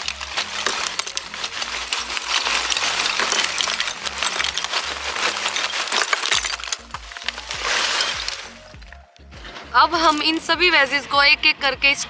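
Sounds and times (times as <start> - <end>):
charcoal clattering into metal stove: 0.0 - 9.0.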